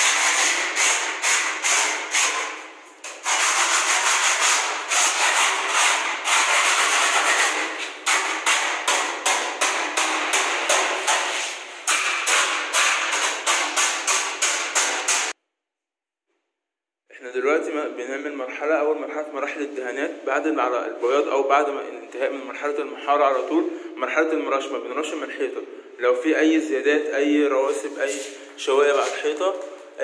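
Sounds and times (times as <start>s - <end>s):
hand tool scraping plaster wall: 0.0s - 15.4s, 27.8s - 29.9s.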